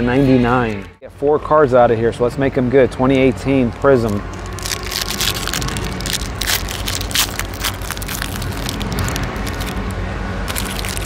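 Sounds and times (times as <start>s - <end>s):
steady low hum: 0.0s - 11.0s
plastic packaging crackling: 3.5s - 11.0s.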